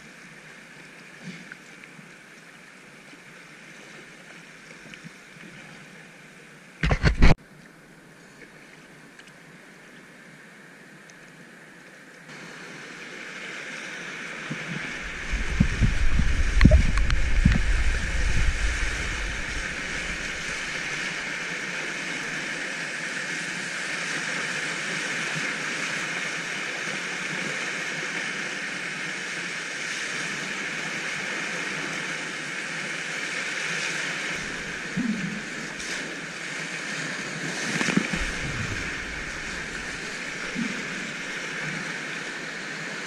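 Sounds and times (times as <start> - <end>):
kayak splashing through waves: 12.6 - 43.0
river rapids rushing: 14.2 - 24.8, 33.3 - 36.9, 37.8 - 43.0.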